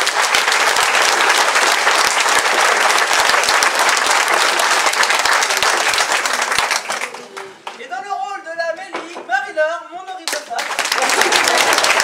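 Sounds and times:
audience applauding: 0.0 - 7.8, 10.2 - 12.0.

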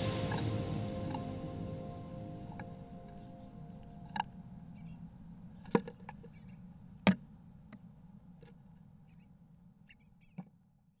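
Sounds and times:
low steady hum: 0.0 - 5.6.

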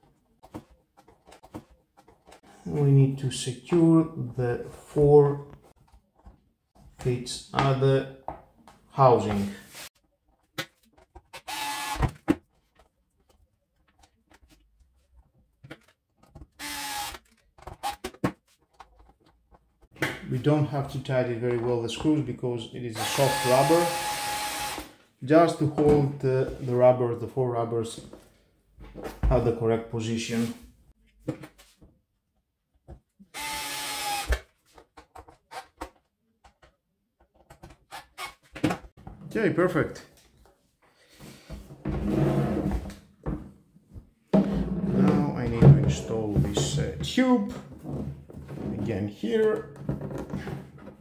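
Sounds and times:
cordless screwdriver whirring: 11.4 - 12.1, 16.6 - 18.0
clicks and knocks of handling: 12.2 - 16.5.

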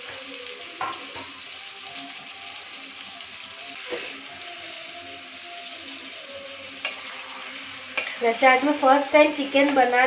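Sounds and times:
chicken sizzling in hot oil: 0.0 - 10.0
spatula clacking against pan: 7.9 - 8.2.

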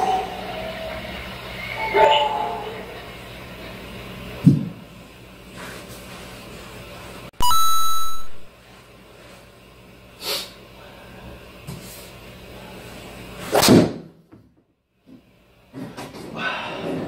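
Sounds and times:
electronic chime ringing: 7.4 - 8.5.

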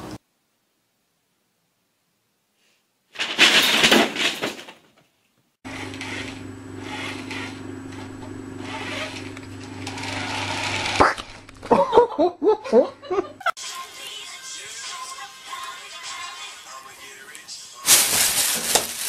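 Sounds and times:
toy car motor whirring: 5.7 - 7.6, 8.6 - 11.2
paper bag crinkling: 17.8 - 19.0.

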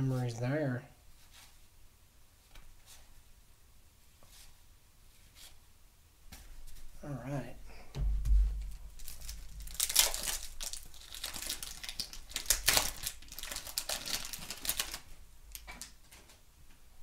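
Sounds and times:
low bump: 7.9 - 9.6
wax paper wrapper crinkling: 8.6 - 16.0.

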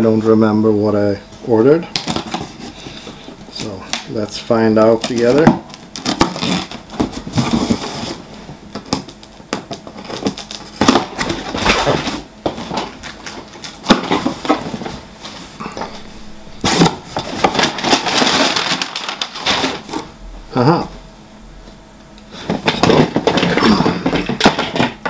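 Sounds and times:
cardboard rustling and scraping: 2.0 - 3.8, 4.9 - 20.2.

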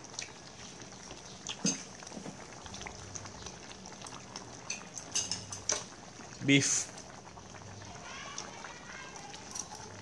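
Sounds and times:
broth simmering in a pot: 0.0 - 10.0
chopsticks and utensils clicking: 9.4 - 9.8.

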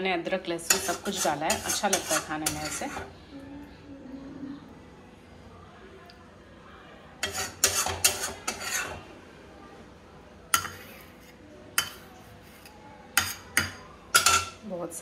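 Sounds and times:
metal spoon scraping a pan: 0.6 - 3.1, 7.2 - 9.1, 10.5 - 14.6.

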